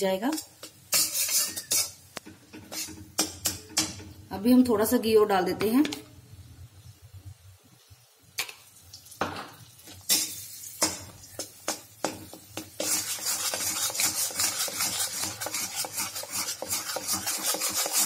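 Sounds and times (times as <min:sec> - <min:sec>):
spatula scraping iron pan: 0:00.3 - 0:03.9, 0:10.1 - 0:18.0.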